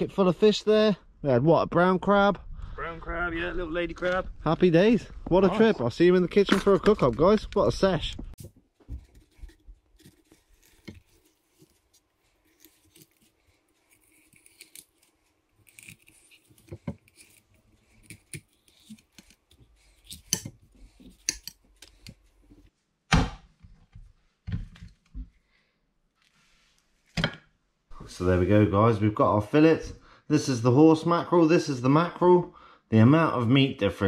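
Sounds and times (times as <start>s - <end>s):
knife cutting and scraping fish: 8.4s - 22.7s.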